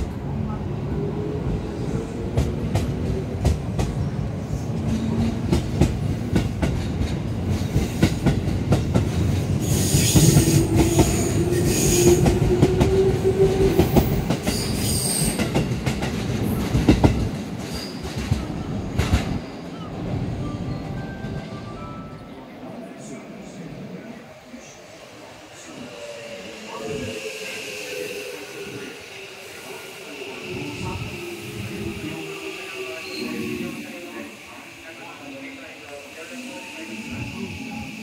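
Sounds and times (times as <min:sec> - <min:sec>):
rising electric train whine: 0:00.0 - 0:38.0
train wheel squeal: 0:09.6 - 0:15.6, 0:17.6 - 0:18.4, 0:26.2 - 0:35.2.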